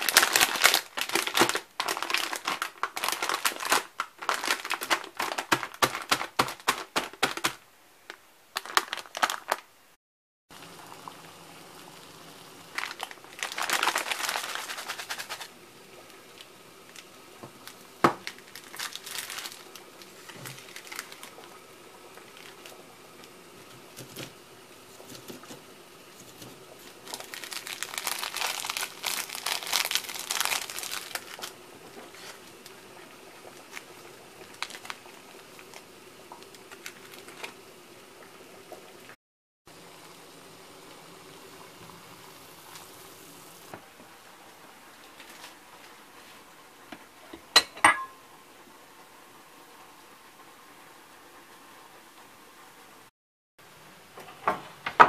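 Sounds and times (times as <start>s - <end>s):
plastic sachets handled: 0.0s - 9.7s, 12.7s - 37.8s, 45.0s - 46.0s
plastic wrapper crinkling: 0.0s - 9.8s, 12.7s - 37.8s, 45.0s - 46.0s.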